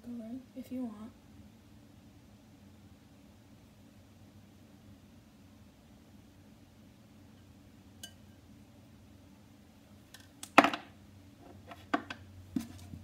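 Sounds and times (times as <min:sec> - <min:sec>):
glass clink: 0:08.0 - 0:08.4.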